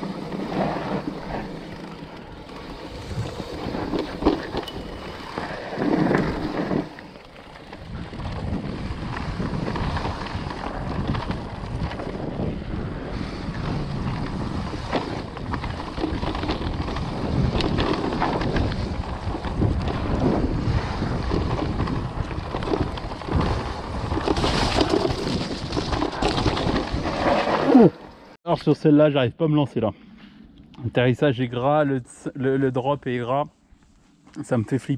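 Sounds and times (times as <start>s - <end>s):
bike rattling and knocking: 0.0s - 12.6s, 13.5s - 27.1s
bike tyres rolling on dirt: 0.0s - 28.4s
wind rumble on microphone: 2.7s - 6.9s, 7.6s - 27.2s.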